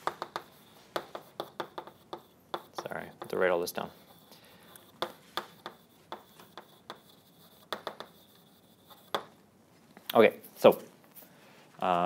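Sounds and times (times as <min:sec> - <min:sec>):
chalk tapping and scratching: 0:00.0 - 0:09.4.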